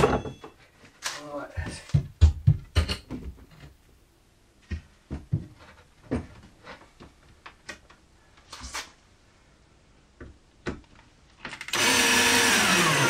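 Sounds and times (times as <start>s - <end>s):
knocks and clunks on workbench: 1.7s - 3.8s, 4.7s - 7.1s.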